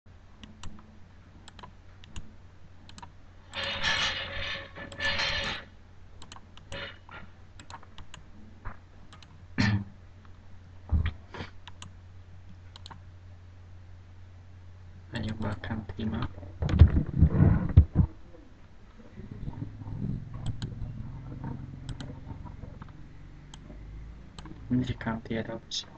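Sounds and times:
steady low hum: 0.1 - 25.9
keyboard and mouse clicks: 0.4 - 0.8, 1.4 - 2.3, 2.9 - 3.8, 6.2 - 6.9, 7.6 - 8.2, 9.1 - 9.4, 11.6 - 12.0, 12.7 - 13.0, 15.2 - 15.6, 20.4 - 20.8, 21.4 - 23.8, 24.4 - 24.7
dense keyboard clatter: 16.0 - 18.1
dull thumps: 16.6 - 18.2.

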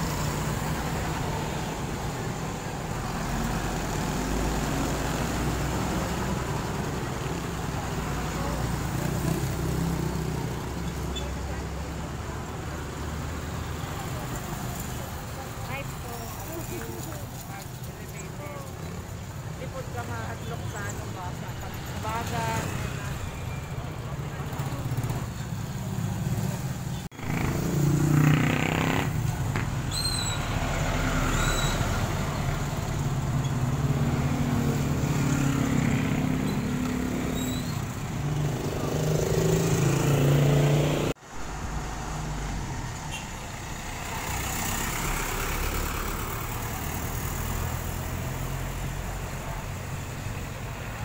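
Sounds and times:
buses passing: 0.0 - 51.0
motorcycle engines passing: 0.0 - 51.0
steady traffic noise: 0.0 - 51.0
short high squeaks: 29.9 - 30.5, 31.3 - 31.9, 37.3 - 37.9.

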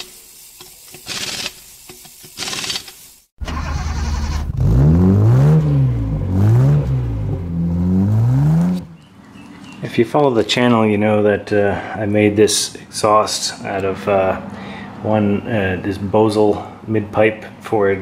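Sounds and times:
car engine starting and revving: 3.4 - 9.0.

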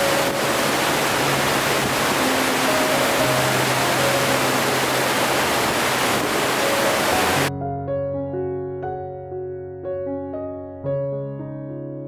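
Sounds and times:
waterfall rushing: 0.0 - 7.5
soft background music: 0.0 - 12.0.

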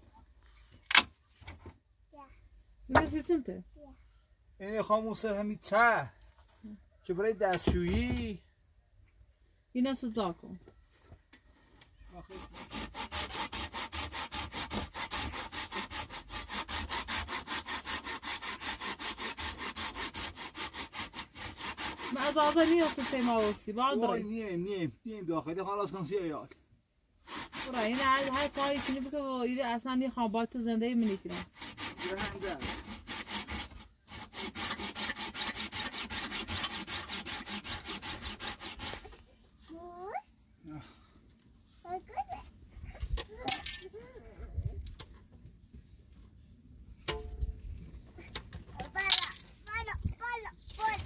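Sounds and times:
hand saw rasping: 12.3 - 23.7, 27.2 - 29.1, 31.0 - 39.2.

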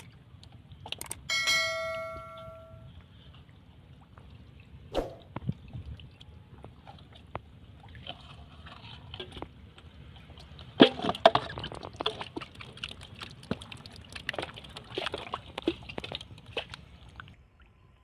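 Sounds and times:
sharp wet slaps: 4.9 - 5.4
digging through wet mud: 6.6 - 17.3.

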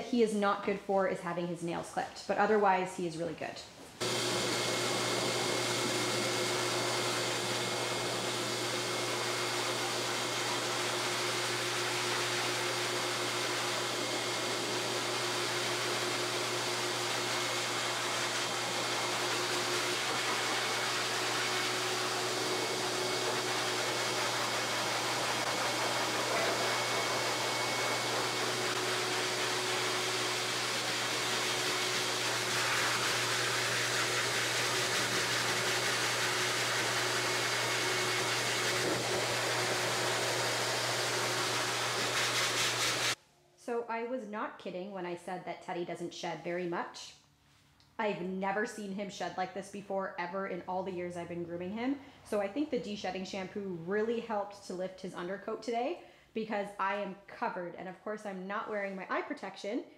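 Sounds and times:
pet dryer blowing air: 4.0 - 43.2.

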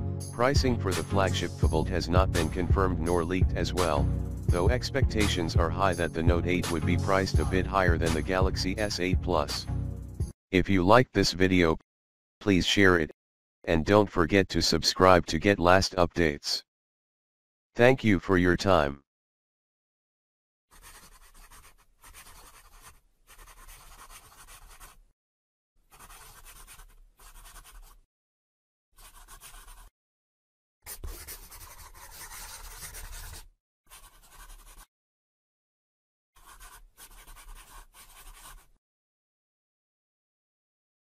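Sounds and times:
marker pen scratching: 1.8 - 9.0, 20.7 - 25.1, 25.8 - 28.1, 29.0 - 29.9, 30.9 - 34.9, 36.4 - 38.8.

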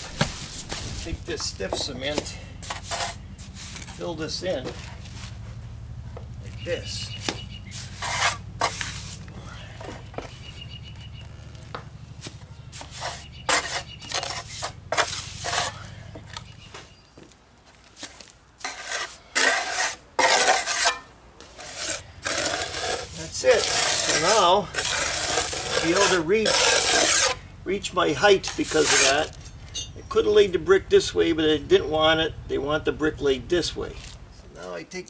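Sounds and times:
low steady hum: 0.0 - 35.0
trowel scraping mortar on concrete: 0.3 - 4.0, 7.7 - 9.3, 12.7 - 15.9, 18.6 - 27.4, 28.2 - 29.4.

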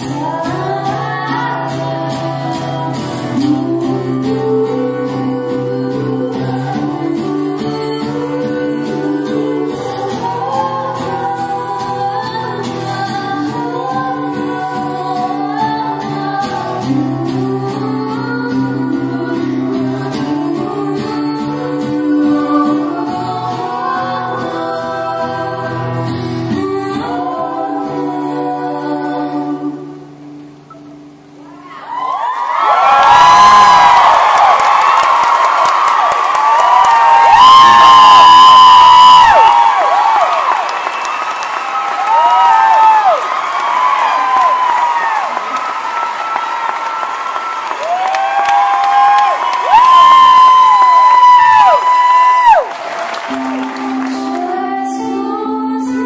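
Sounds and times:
voices singing in harmony: 0.0 - 30.4, 53.6 - 56.0.

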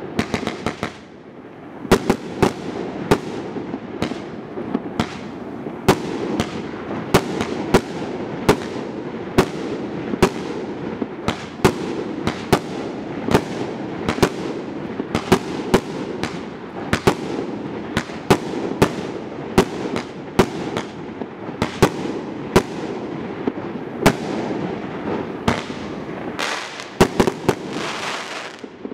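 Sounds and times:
firework bangs: 0.0 - 28.9.

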